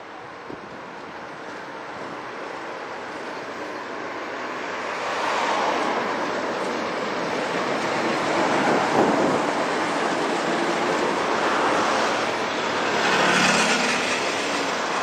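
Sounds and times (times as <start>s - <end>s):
road traffic rushing: 0.0s - 15.0s
wind noise: 5.6s - 15.0s
motorcycle passing: 12.8s - 14.6s.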